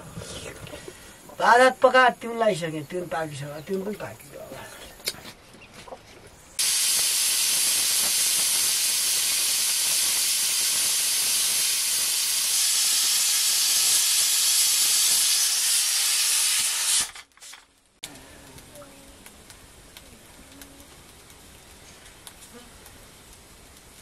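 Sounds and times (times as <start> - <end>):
pressure cooker steam hiss: 6.6 - 17.6.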